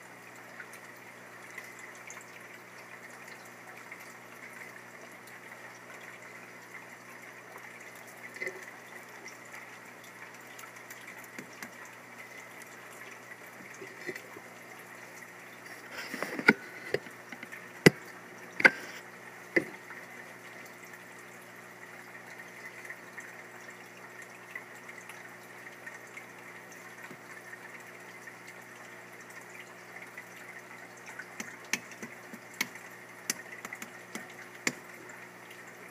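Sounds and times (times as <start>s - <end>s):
steady watery hum and hiss: 0.0s - 35.9s
sharp clicks and taps: 31.4s - 34.8s.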